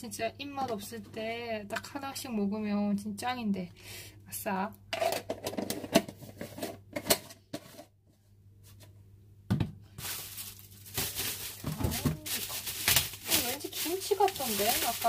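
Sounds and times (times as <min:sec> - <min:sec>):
plastic wrapping crinkling: 0:10.0 - 0:15.0.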